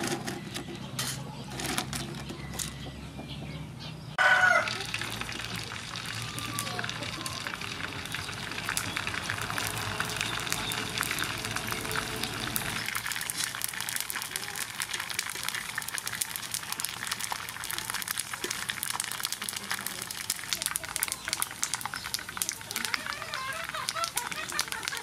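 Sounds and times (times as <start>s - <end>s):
pork skin crackling in hot oil: 4.2s - 25.0s.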